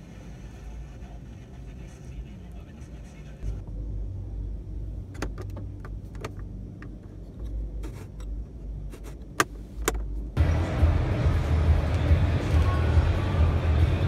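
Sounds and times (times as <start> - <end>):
low hall rumble: 10.1 - 14.0.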